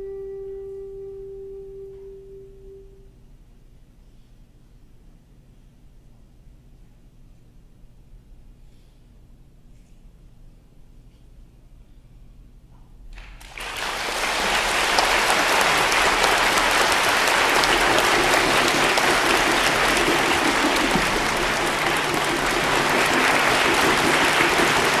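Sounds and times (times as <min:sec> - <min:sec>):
audience applauding: 0:13.2 - 0:25.0.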